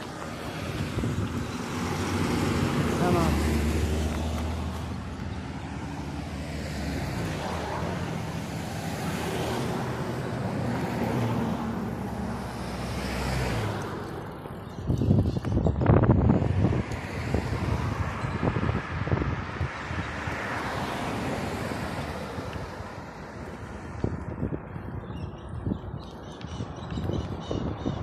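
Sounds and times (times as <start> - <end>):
wind buffeting microphone: 0.0 - 5.8, 14.7 - 20.5, 21.9 - 28.0
car engines passing: 0.0 - 28.0
tyres on road: 0.0 - 28.0.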